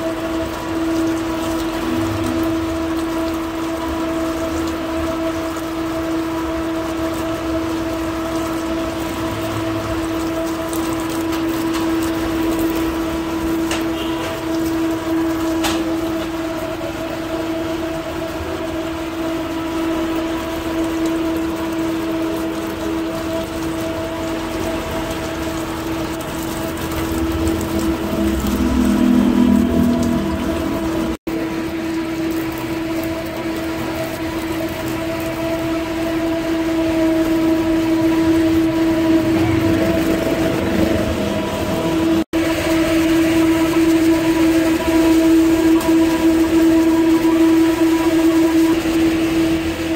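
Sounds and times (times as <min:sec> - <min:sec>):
tap water splashing into sink: 0:00.0 - 0:16.6
steady hum: 0:00.0 - 0:49.9.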